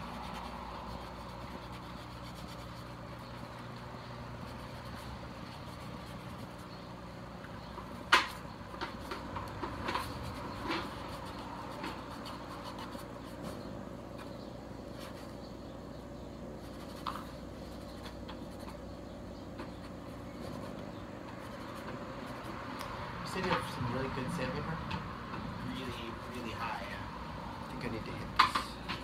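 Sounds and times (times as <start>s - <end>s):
rag rubbing helmet: 0.0s - 6.8s.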